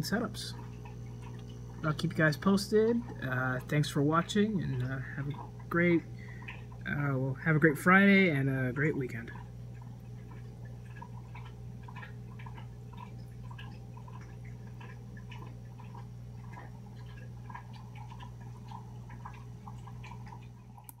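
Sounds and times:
electric hum: 0.0s - 21.0s
water bubbling and dripping: 0.0s - 21.0s.

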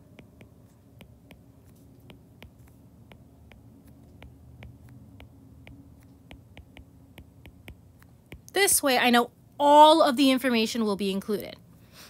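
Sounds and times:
stylus tapping on glass screen: 0.0s - 8.6s
faint low hum: 0.0s - 12.0s.

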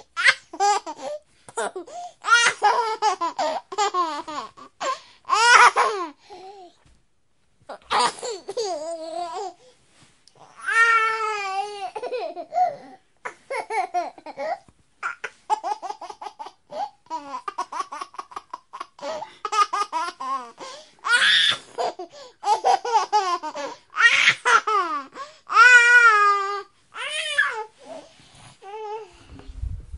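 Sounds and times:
baby laughing: 0.0s - 6.2s, 11.2s - 25.8s.

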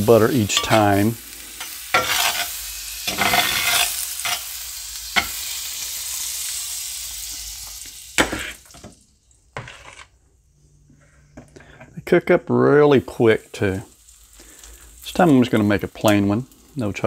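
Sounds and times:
butter sizzling in skillet: 0.0s - 10.2s, 11.6s - 17.0s
spatula scraping and tapping pan: 0.5s - 1.0s, 1.6s - 4.5s, 5.2s - 5.4s, 8.2s - 8.9s, 9.5s - 10.2s.

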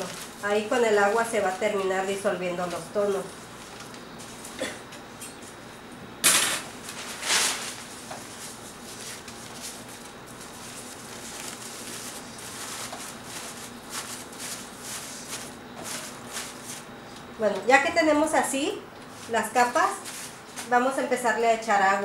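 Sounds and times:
sharp paper crackle: 0.0s - 0.8s, 6.8s - 16.9s
paper rustling and crinkling: 0.0s - 1.6s, 2.6s - 4.6s, 6.7s - 17.3s, 19.1s - 20.8s.

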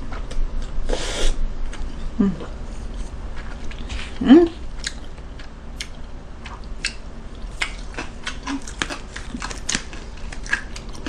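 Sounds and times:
wet chewing and mouth clicks: 4.8s - 11.0s.

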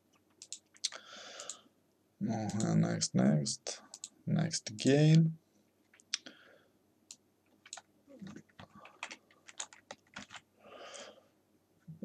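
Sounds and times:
computer keyboard keystrokes: 0.4s - 1.6s, 7.6s - 10.4s.

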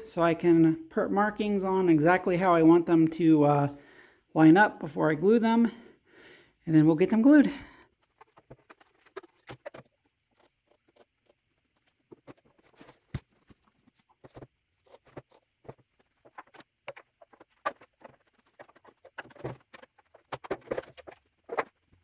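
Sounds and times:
plastic pipes clicking and knocking: 8.0s - 22.0s.

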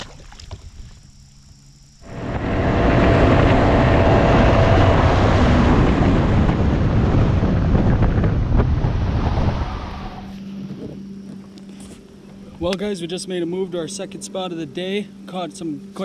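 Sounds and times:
motorboat engine: 2.0s - 8.9s
wind buffeting microphone: 2.0s - 11.0s
water rushing along hull: 2.0s - 11.1s.

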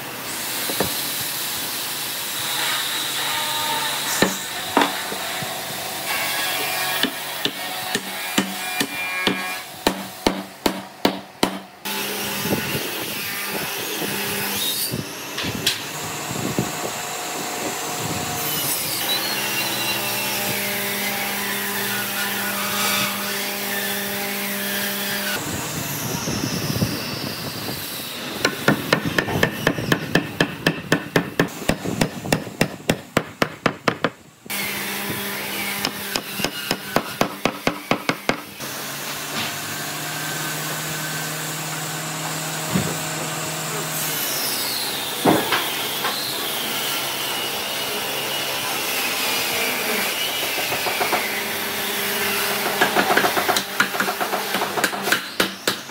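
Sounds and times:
hammer striking wood joints: 7.0s - 11.7s, 28.4s - 34.2s.

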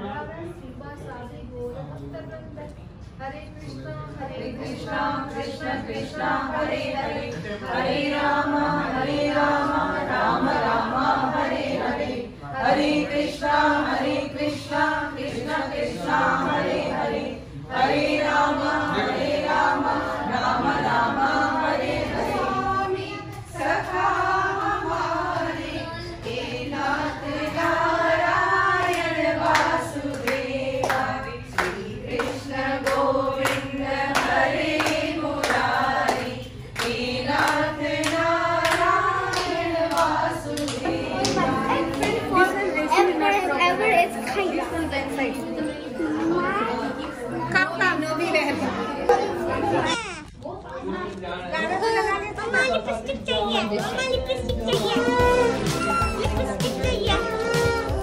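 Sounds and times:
women singing together: 4.1s - 49.9s, 53.6s - 58.0s
rhythmic hand clapping: 26.2s - 42.7s, 53.6s - 58.0s.

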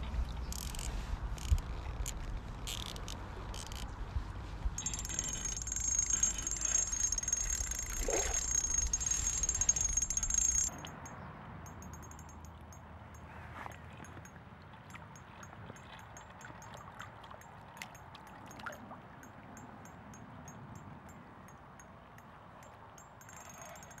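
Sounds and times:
water-side ambience: 0.0s - 24.0s
high buzz of rapid ticking: 0.4s - 4.0s, 4.6s - 12.9s, 23.0s - 24.0s.

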